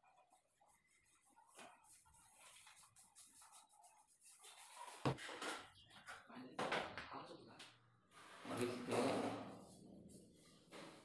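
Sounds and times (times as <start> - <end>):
paintbrush rubbing on ceiling: 0.0 - 5.2, 8.1 - 11.0.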